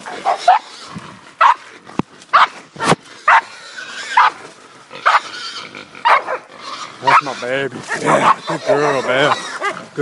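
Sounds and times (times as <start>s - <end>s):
dog barking: 0.1s - 0.7s, 1.4s - 1.6s, 2.3s - 2.6s, 3.3s - 3.5s, 4.2s - 4.4s, 5.0s - 5.3s, 6.0s - 6.5s, 7.9s - 8.6s.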